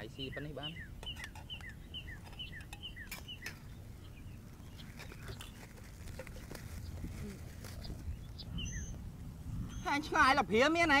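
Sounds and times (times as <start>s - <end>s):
bird chirping: 0.0s - 10.4s
bowls clicking and tapping: 1.0s - 3.6s.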